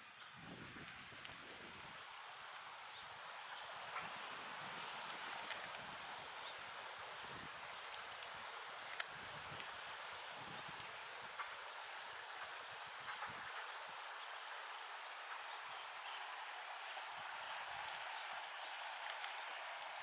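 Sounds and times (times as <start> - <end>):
insects high whine: 3.2 - 9.8.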